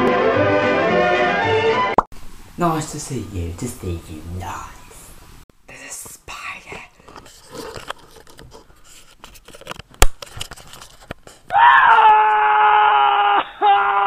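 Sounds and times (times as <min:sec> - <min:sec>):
handling rustles and clicks: 0:07.0 - 0:11.5.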